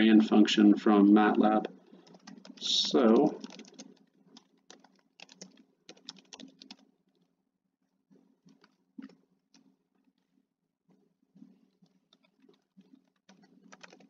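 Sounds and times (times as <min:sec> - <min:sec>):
typing on computer keyboard: 0:01.9 - 0:06.8, 0:08.5 - 0:09.2, 0:11.8 - 0:14.0.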